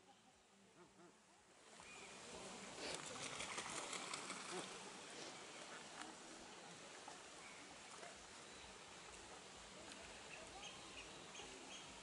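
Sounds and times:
goose splashing water: 1.8s - 10.5s.

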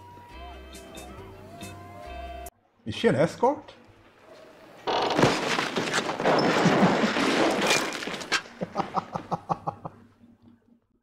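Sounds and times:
loud crash: 5.0s - 8.4s
man laughing: 8.6s - 10.1s.

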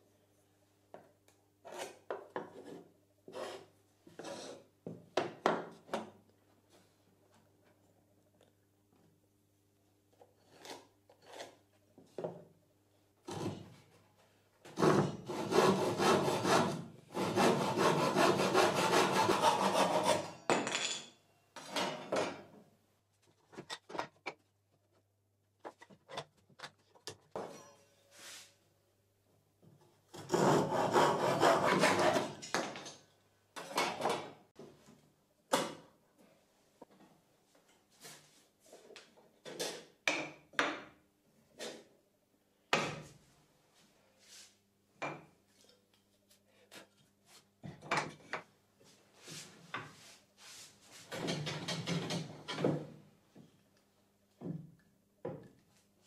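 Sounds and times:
hand saw cutting wood: 14.8s - 20.4s, 30.1s - 32.4s.

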